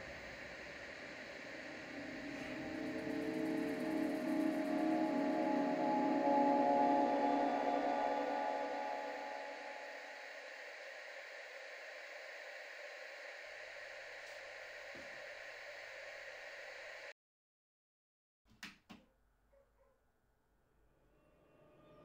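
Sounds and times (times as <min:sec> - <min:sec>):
television static hissing: 0:00.0 - 0:17.1.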